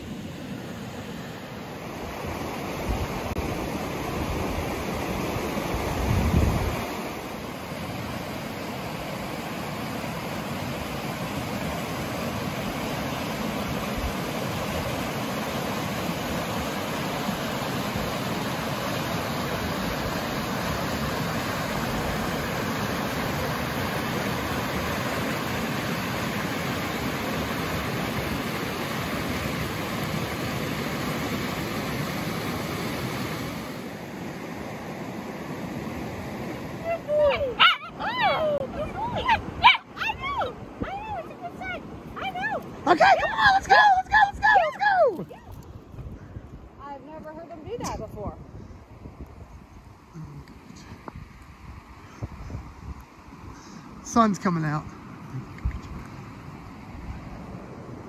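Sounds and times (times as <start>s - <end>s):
river rushing over rocks: 0.0s - 45.4s.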